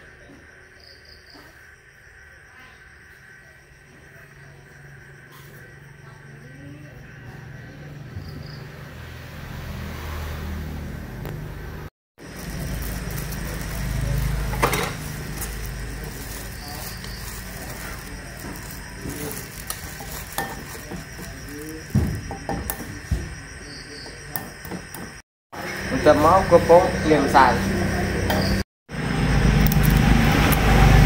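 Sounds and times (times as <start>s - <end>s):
metal utensils clinking on pan: 13.3s - 21.5s.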